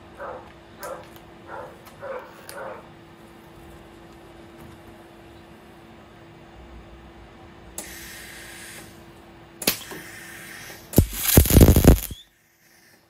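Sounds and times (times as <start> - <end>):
welder hiss: 10.0 - 12.2
steady low hum: 10.7 - 12.3
sharp click: 11.0 - 12.2
welding arc crackling: 11.0 - 12.2.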